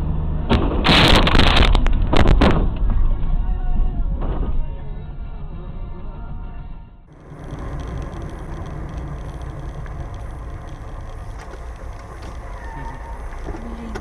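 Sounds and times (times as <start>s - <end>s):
car engine and tyre rumble: 0.0s - 3.5s, 7.1s - 14.0s.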